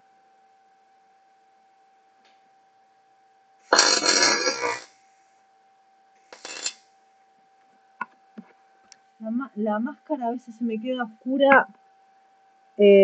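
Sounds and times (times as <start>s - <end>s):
electric arc welding bursts: 3.7s - 4.9s.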